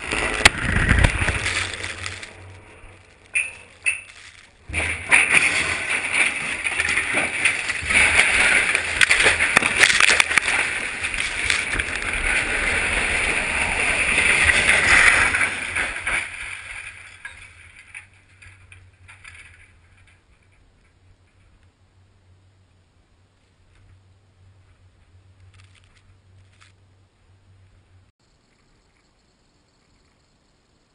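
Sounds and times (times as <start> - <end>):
steel tower crashing down: 0.0 - 21.6.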